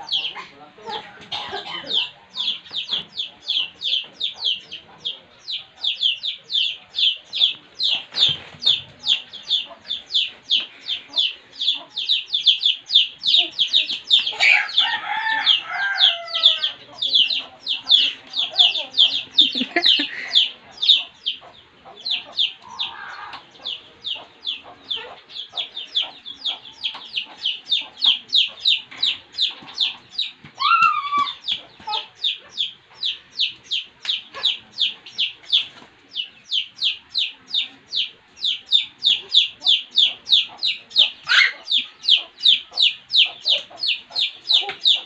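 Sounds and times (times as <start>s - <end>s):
chick peeping: 0.0s - 45.0s.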